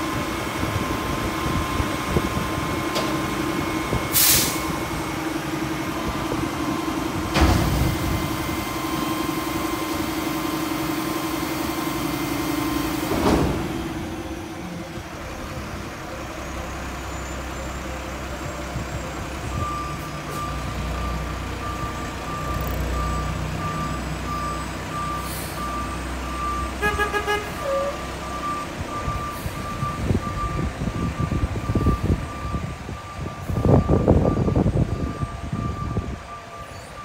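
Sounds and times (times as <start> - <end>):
diesel truck engine: 0.0 - 37.0
backup alarm beeping: 18.7 - 37.0.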